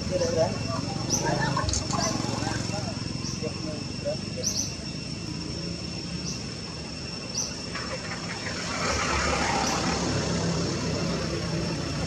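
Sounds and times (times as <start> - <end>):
broad rush of noise: 0.0 - 12.0
high-pitched insect drone: 0.0 - 12.0.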